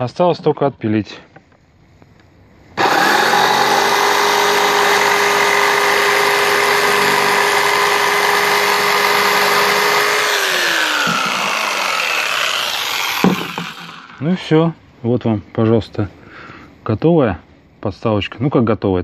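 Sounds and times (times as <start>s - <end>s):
electric jigsaw sawing wood: 2.8s - 14.2s.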